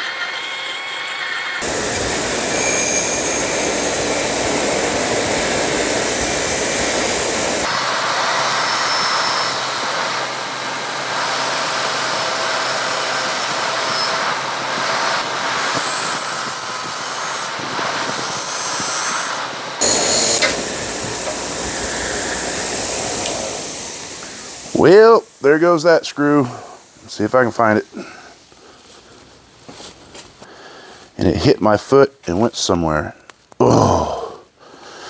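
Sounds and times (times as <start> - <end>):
bench grinder grinding metal: 0.0 - 24.8.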